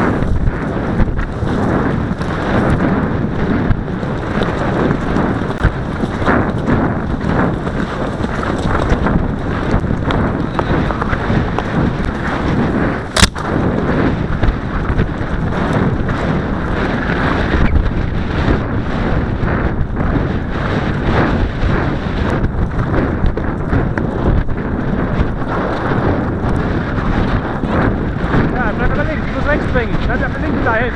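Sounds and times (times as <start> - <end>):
low thuds: 0.0 - 30.9
wind buffeting microphone: 0.0 - 30.9
sharp click: 13.1 - 13.4.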